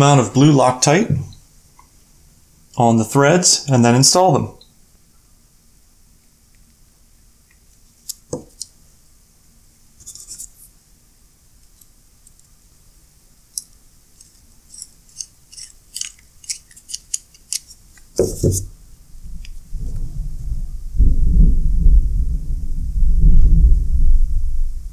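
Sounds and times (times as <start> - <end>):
screwdriver and screws clicking: 13.6 - 18.5.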